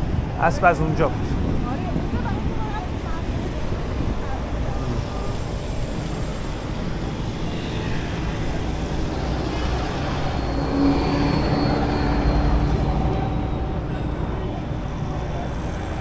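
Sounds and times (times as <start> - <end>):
street traffic rumble: 0.0 - 16.0
vehicle engine passing: 3.4 - 16.0.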